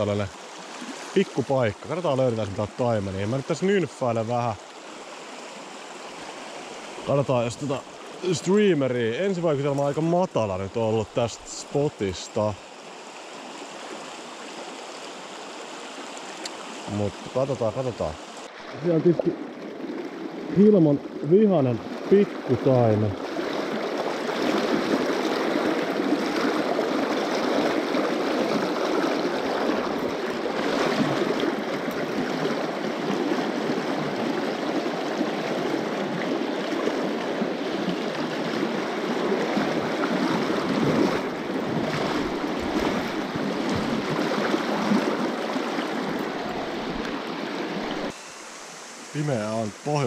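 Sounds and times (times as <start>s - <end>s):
water rushing over rocks: 0.0s - 50.0s.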